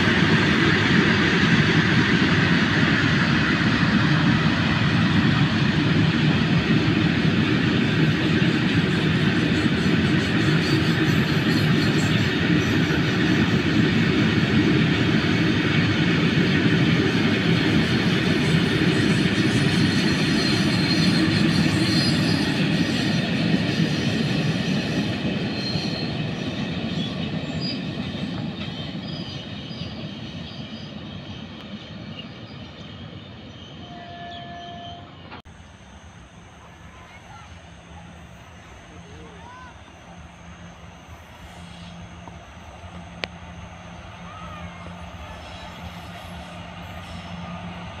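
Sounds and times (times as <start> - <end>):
train wheels clattering on rails: 0.0 - 32.7.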